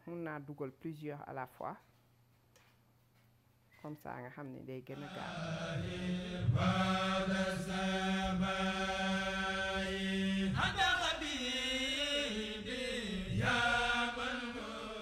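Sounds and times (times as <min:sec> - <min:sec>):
person chanting: 0:05.0 - 0:15.0.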